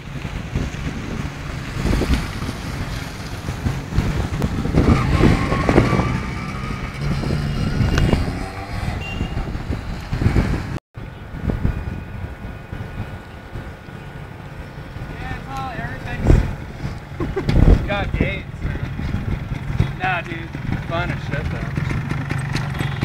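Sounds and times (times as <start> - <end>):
motorcycle engine passing by: 1.7 - 10.8, 17.6 - 23.0.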